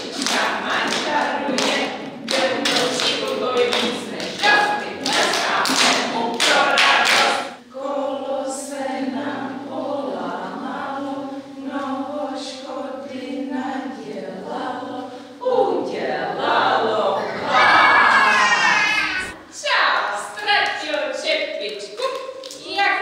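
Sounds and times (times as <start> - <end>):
group singing slowly: 0.0 - 19.4
mixed voices: 16.9 - 19.5.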